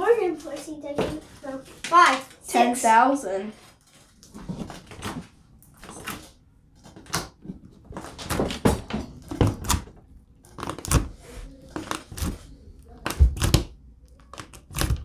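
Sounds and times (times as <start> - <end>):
sticky slime squelches and pops: 10.6 - 15.0.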